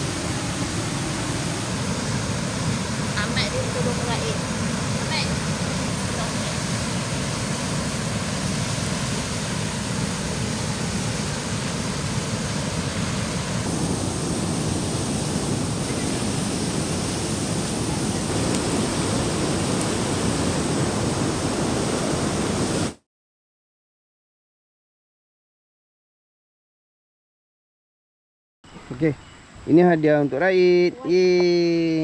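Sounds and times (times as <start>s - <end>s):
river rushing over rocks: 0.0s - 23.0s.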